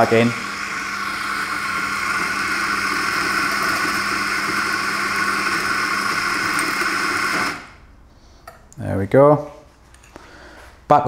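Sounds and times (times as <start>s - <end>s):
coffee grinder motor whirring: 0.0s - 7.8s.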